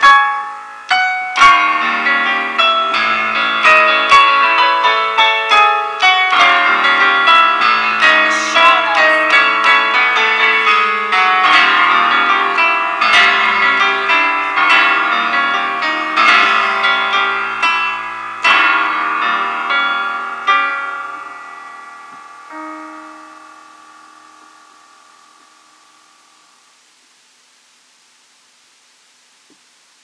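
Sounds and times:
solo piano playing: 0.0s - 26.7s.

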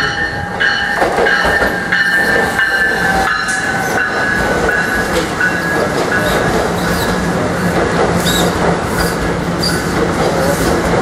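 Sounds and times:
train wheels rumbling: 0.0s - 11.0s.

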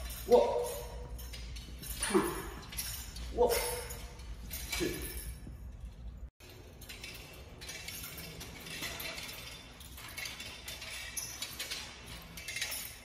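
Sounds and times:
metal blade rattling and clinking: 0.0s - 13.0s.

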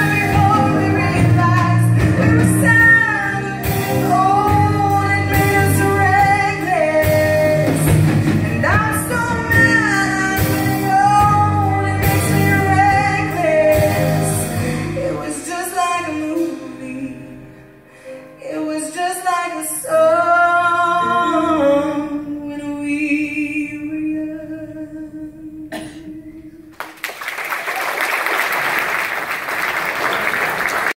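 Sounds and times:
women singing with live band: 0.0s - 17.4s
audience applause: 26.8s - 31.0s.

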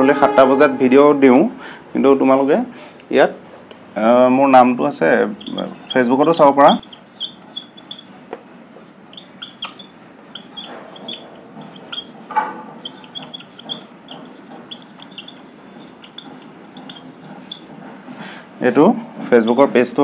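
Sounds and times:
marker squeaking on whiteboard: 5.1s - 18.2s, 19.3s - 20.0s
marker tip scratching: 5.2s - 8.2s, 8.8s - 17.8s, 19.4s - 19.8s.

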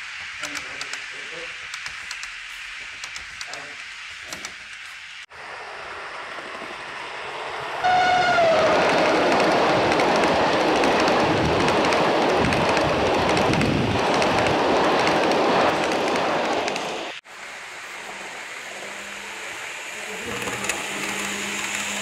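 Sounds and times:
model train wheels rattling: 0.0s - 5.2s, 5.9s - 17.2s.

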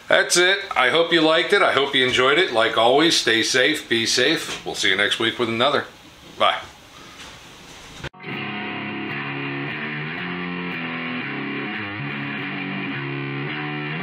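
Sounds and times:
guitar music: 8.2s - 14.0s.

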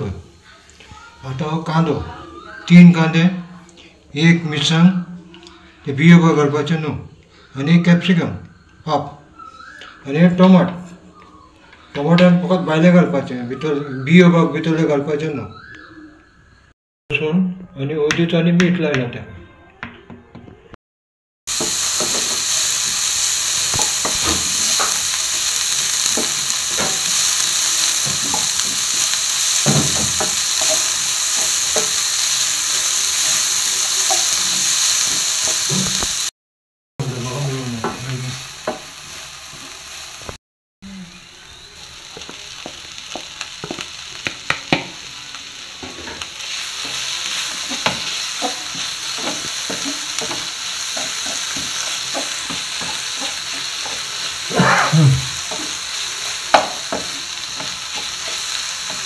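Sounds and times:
food sizzling in a wok: 0.0s - 4.0s, 21.5s - 36.3s, 37.0s - 59.0s.

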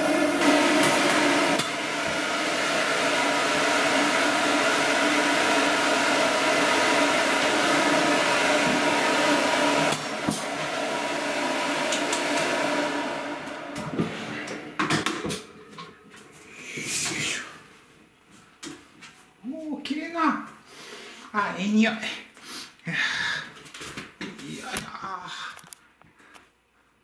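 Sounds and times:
blow dryer blasting air: 0.0s - 15.6s, 16.4s - 17.6s.

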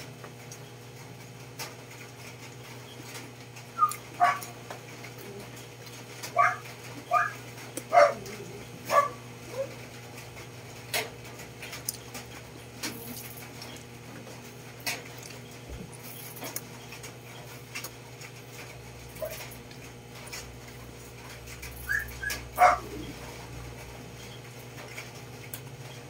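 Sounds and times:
dog whimpering and yipping: 6.4s - 9.7s, 21.8s - 23.2s
eating clicks and smacks: 10.8s - 15.4s.

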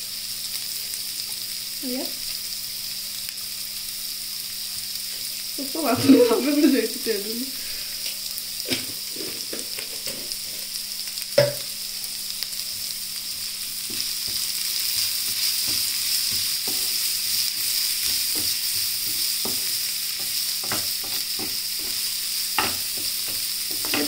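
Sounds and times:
vegetables sizzling in oil: 0.0s - 24.0s
spatula knocking on pan: 11.4s - 11.7s, 18.0s - 24.0s.

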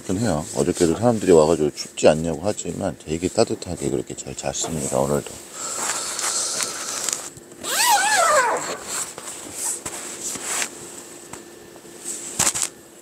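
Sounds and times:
high whining cry: 5.6s - 9.1s.

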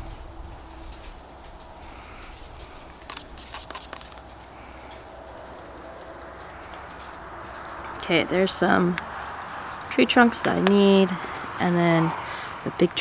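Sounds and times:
low background noise: 0.0s - 13.0s
brush clicking against metal cup: 3.0s - 4.3s.

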